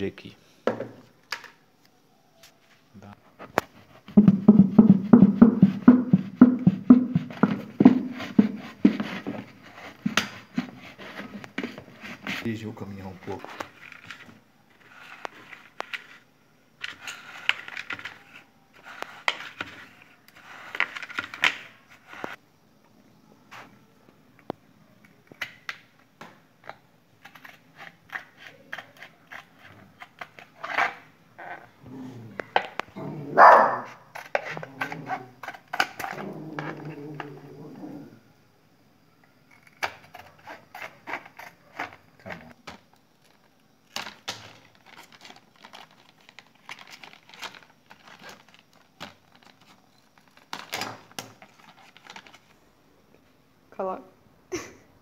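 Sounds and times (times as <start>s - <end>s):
plastic crunching and cracking: 40.8s - 52.6s.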